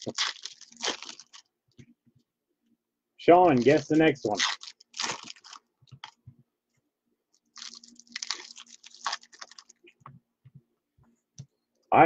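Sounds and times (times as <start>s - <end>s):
trading cards and packaging crinkling: 0.0s - 1.5s, 3.4s - 6.2s, 7.3s - 9.8s.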